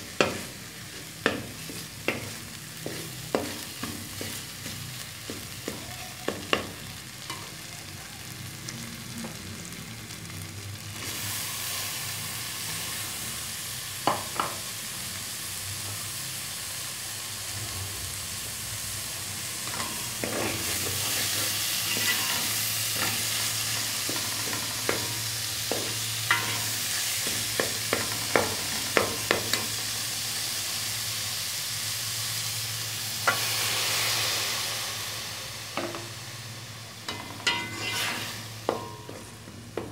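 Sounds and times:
onions sizzling in oil: 0.0s - 39.9s
metal spoon scraping a pot: 19.7s - 23.4s, 26.3s - 26.7s, 37.1s - 38.4s.

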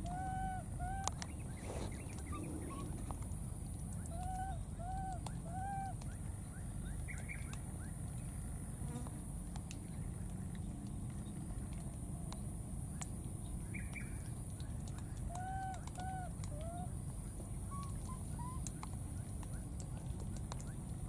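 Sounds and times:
baby monkeys cooing: 1.9s - 3.1s, 17.7s - 18.7s.

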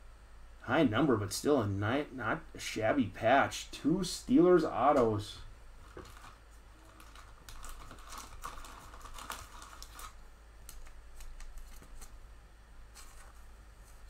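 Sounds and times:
plastic sleeve rustling: 5.8s - 12.2s, 12.9s - 14.0s.

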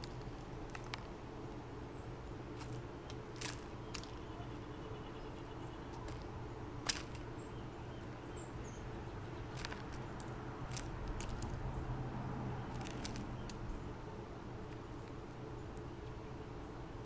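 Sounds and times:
bird pecking seeds clicks: 0.0s - 1.1s, 2.6s - 4.3s, 5.9s - 7.3s, 9.5s - 11.6s, 12.6s - 13.7s
low background hum: 0.0s - 17.0s.

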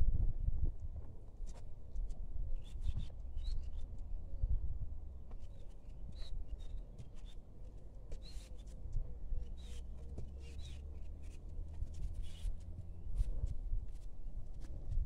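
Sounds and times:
faint bird chirps: 2.6s - 4.4s, 5.4s - 7.5s, 8.2s - 11.5s, 12.1s - 12.6s.

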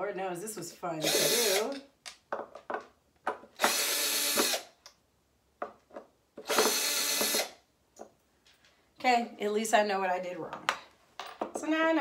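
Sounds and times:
cordless drill running: 1.0s - 1.8s, 3.6s - 4.8s, 6.4s - 7.6s.

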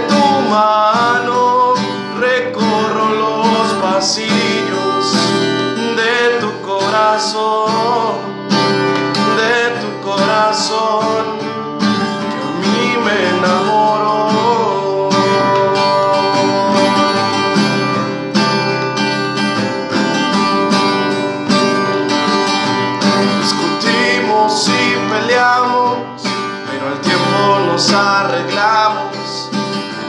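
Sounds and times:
acoustic guitar strummed: 0.0s - 30.0s.

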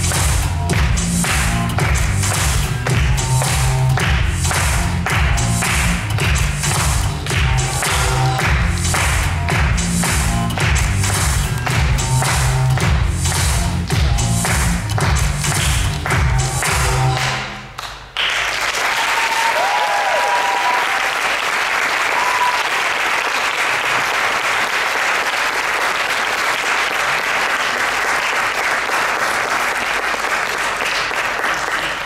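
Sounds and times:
music: 0.0s - 18.4s
audience applause: 15.6s - 32.0s
crowd cheers: 18.6s - 24.0s.

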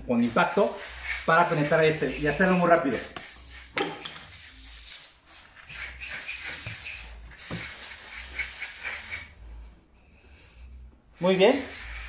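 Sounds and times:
air hissing out of tyre: 3.2s - 9.4s.

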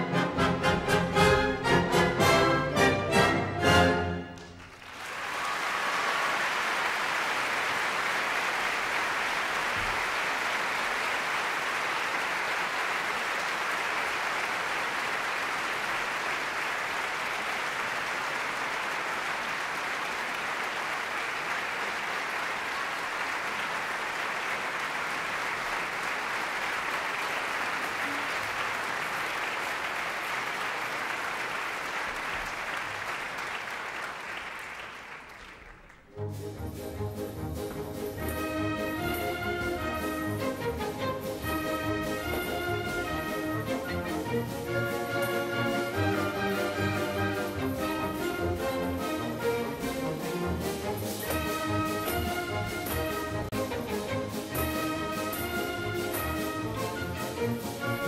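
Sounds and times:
audience applauding: 0.0s - 36.2s, 38.4s - 55.4s.

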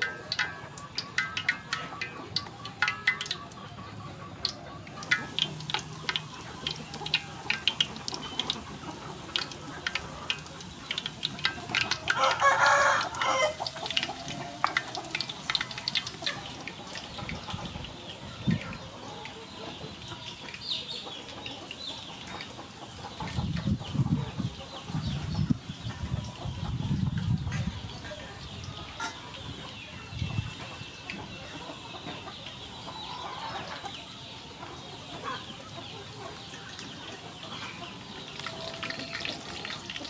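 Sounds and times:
food deep-frying in oil: 0.0s - 40.0s
rooster crowing: 12.0s - 14.6s.

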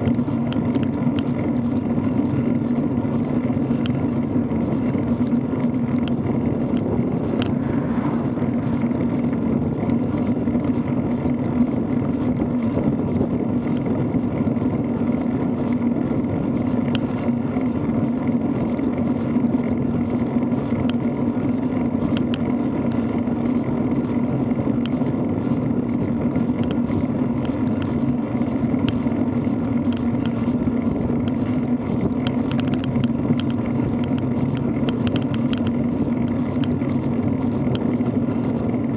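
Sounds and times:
bike tyres on asphalt: 0.0s - 38.9s
constant low hum: 0.0s - 38.9s
wind on microphone: 0.0s - 38.9s
small ticks: 3.7s - 4.0s, 16.9s - 17.1s, 20.8s - 21.0s, 22.1s - 22.5s, 26.5s - 26.8s, 28.8s - 29.0s, 29.8s - 30.5s, 31.2s - 36.8s.

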